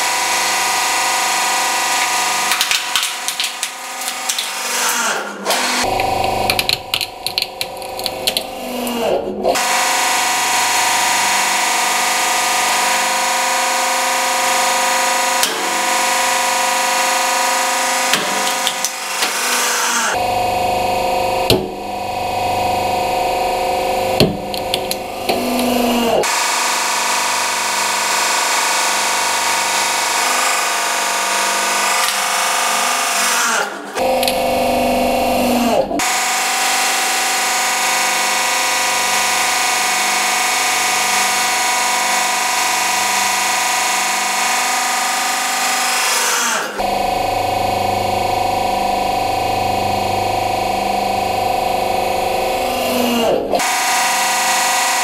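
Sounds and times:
hydraulic press running: 0:00.0 - 0:55.0
plastic bottle cracking and bursting: 0:02.5 - 0:04.6, 0:05.9 - 0:08.5.

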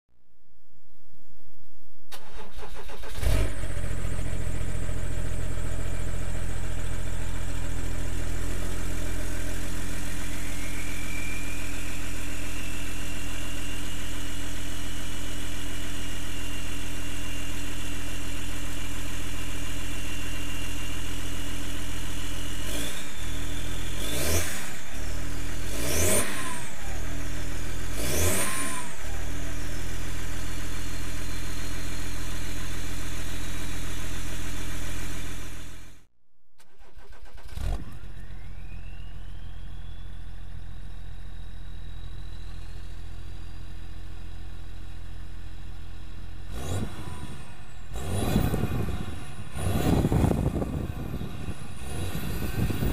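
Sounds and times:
diesel engine starting and revving: 0:02.1 - 0:52.9
turbo whistle: 0:10.4 - 0:12.8, 0:37.8 - 0:40.8.

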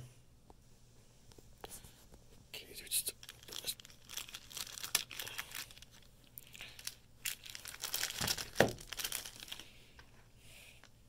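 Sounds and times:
plastic packaging crinkling: 0:03.0 - 0:09.7.

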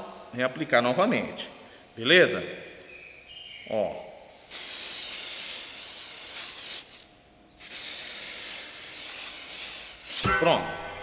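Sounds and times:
aerosol can spraying hiss: 0:04.4 - 0:10.3.

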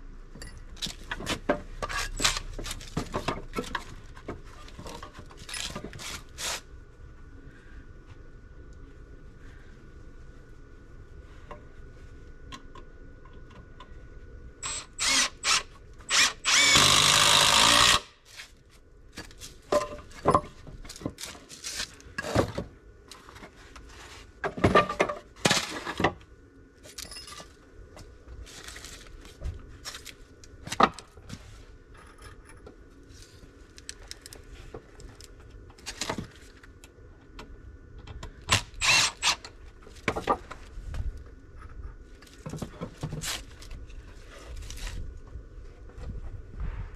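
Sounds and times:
cordless drill running into wood: 0:14.6 - 0:18.1, 0:38.5 - 0:39.5.

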